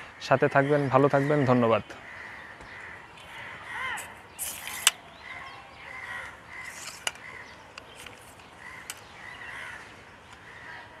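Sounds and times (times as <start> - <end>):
crows cawing: 0.0 - 11.0
sharp clicks: 4.0 - 5.0, 6.2 - 9.2.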